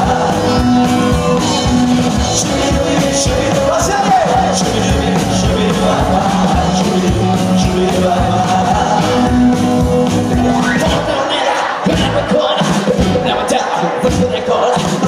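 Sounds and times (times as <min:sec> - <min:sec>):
electric guitar: 0:00.0 - 0:11.2
upright double bass: 0:00.0 - 0:11.2, 0:11.9 - 0:14.6
drums: 0:00.0 - 0:15.0
keyboard: 0:00.0 - 0:15.0.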